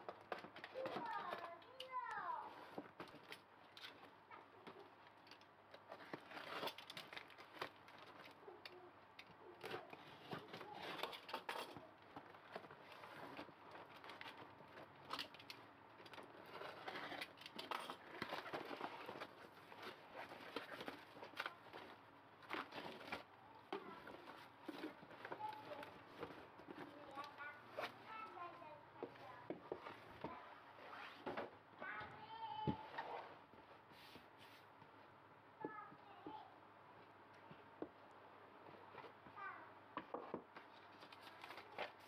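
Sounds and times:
scraping and clicks: 0.0 - 28.4
paper packing rustling: 0.0 - 31.5, 40.5 - 42.0
packing tape cut and torn: 4.6 - 28.0.

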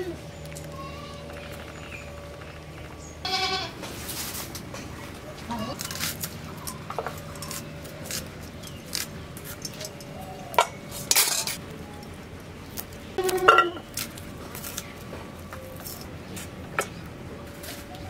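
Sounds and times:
clicks and crackles of peeling: 5.7 - 17.0.

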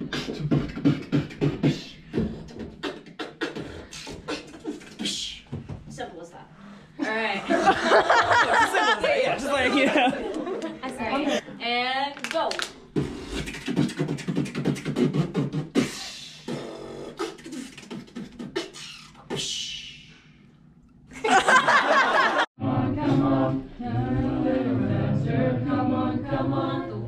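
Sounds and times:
a cappella group singing: 0.0 - 5.7, 21.8 - 27.0
beatboxing: 0.0 - 5.9, 12.7 - 20.4.

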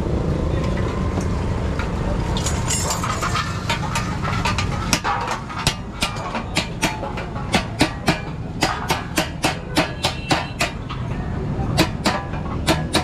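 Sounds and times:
hammer tapping on metal: 3.7 - 13.0.

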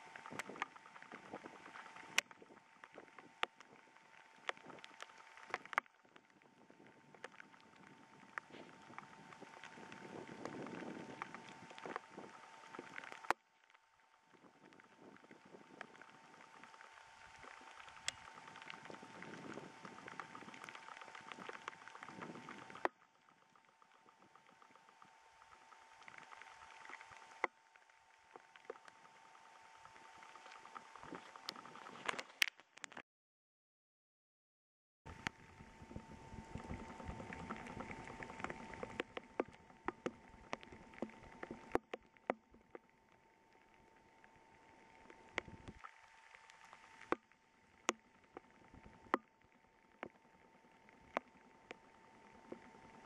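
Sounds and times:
faint steady tone: 0.0 - 31.9, 35.1 - 53.0
rain pattering: 14.4 - 29.2, 35.1 - 49.1
raindrops ticking close: 36.4 - 53.0.

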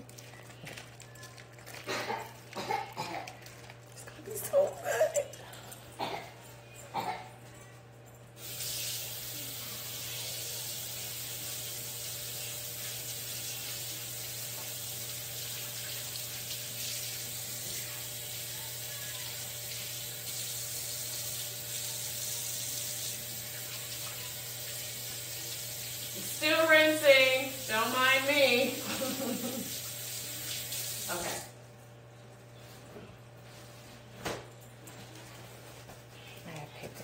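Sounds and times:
kitchen tap running: 8.4 - 31.4.

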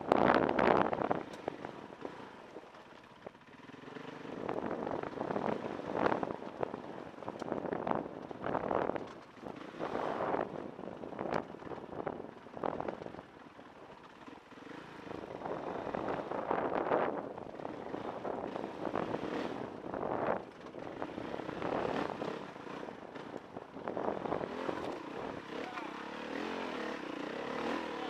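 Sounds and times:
dirt bike engine revving: 14.2 - 28.0.

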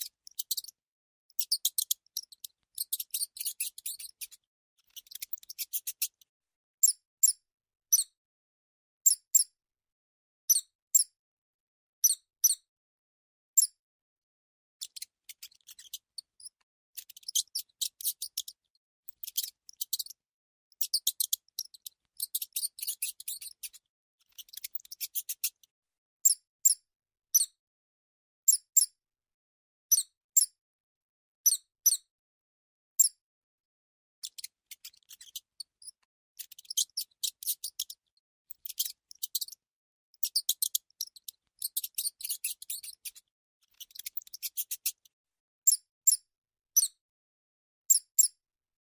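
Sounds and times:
mouse squeaking: 0.0 - 6.2, 6.8 - 8.2, 9.0 - 9.6, 10.5 - 11.2, 12.0 - 12.7, 13.6 - 13.8, 14.8 - 26.8, 28.5 - 29.0, 29.9 - 30.6, 31.5 - 32.1, 33.0 - 33.2, 34.2 - 47.0, 47.9 - 48.4.

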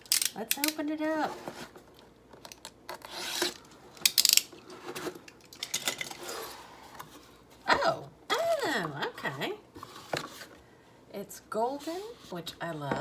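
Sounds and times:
box cutter slicing packing tape: 3.0 - 3.6.

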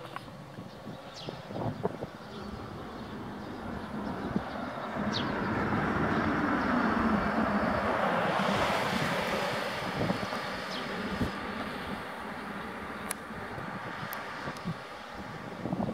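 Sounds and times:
car driving past: 2.2 - 13.0.

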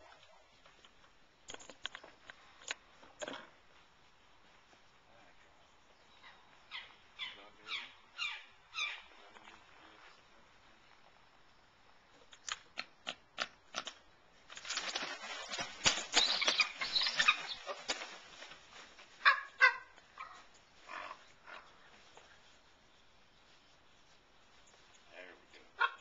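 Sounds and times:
eagle wings flapping: 12.5 - 19.6.

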